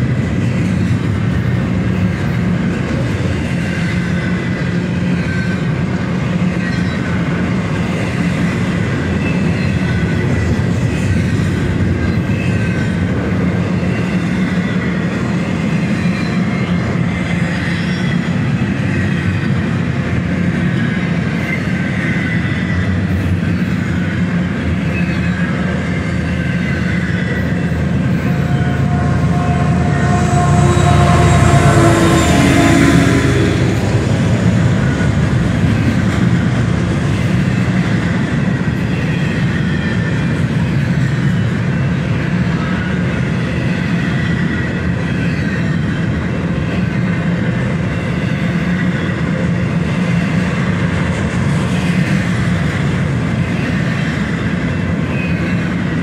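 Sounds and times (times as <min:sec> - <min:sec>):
diesel locomotive engine: 0:00.0 - 0:56.0
train wheels rumbling on rails: 0:00.0 - 0:56.0
wheel squeal: 0:12.0 - 0:19.7, 0:20.5 - 0:35.1, 0:53.4 - 0:56.0.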